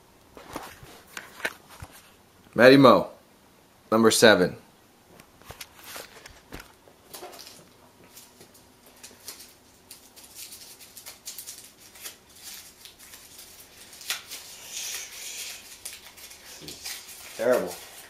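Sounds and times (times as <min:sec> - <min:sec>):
paper crinkling: 0:05.4 - 0:18.0.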